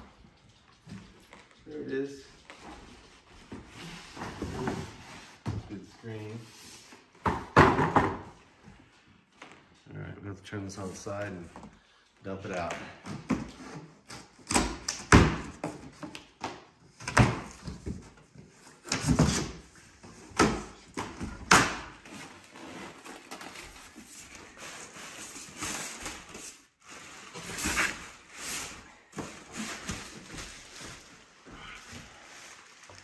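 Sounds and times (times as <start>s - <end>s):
rustling of packing and plastic: 16.9s - 33.0s
cardboard tearing: 22.0s - 28.8s.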